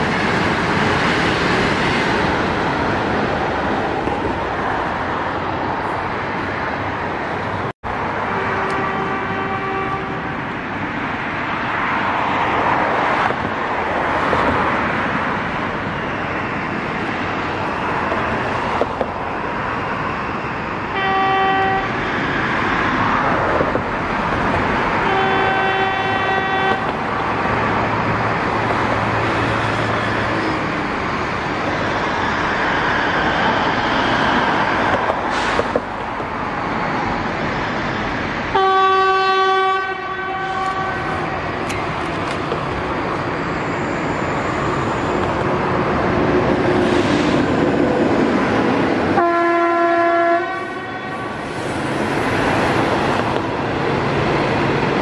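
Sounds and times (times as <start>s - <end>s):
noisy rail yard background: 0.0s - 55.0s
train horn blasts: 8.2s - 10.3s, 20.9s - 22.0s, 25.0s - 27.0s, 38.5s - 41.6s, 49.2s - 51.5s.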